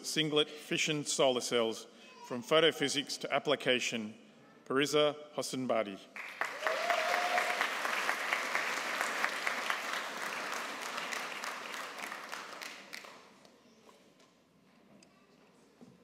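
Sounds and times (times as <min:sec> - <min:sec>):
audience applauding: 0:06.2 - 0:13.3.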